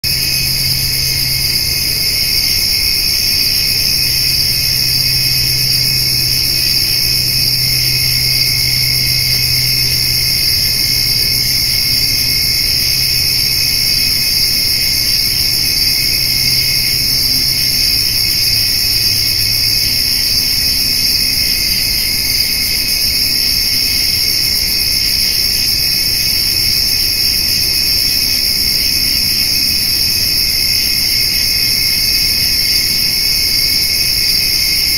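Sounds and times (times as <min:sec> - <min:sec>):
low hum: 0:00.0 - 0:24.2
crickets and grasshoppers trilling: 0:00.0 - 0:34.9.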